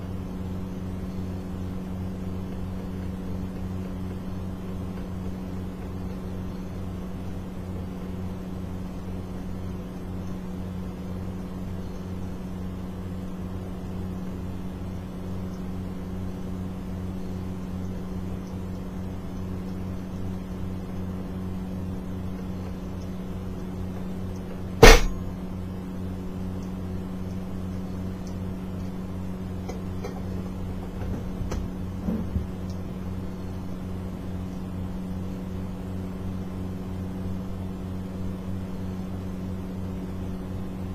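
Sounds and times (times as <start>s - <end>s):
low machine hum: 0.0s - 40.9s
sharp knock: 24.8s - 25.2s.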